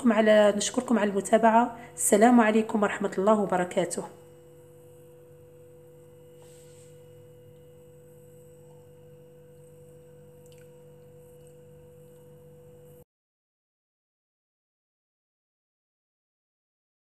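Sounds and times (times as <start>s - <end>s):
steady hum with mid-pitched tone: 0.0s - 13.1s.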